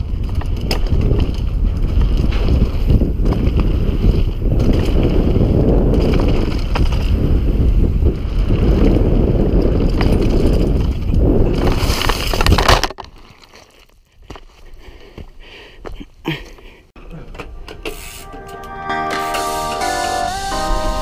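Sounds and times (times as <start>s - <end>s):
wind buffeting microphone: 0.0s - 12.7s
bike rattles and knocks: 0.0s - 14.6s
tyre rumble on dirt: 0.0s - 14.6s.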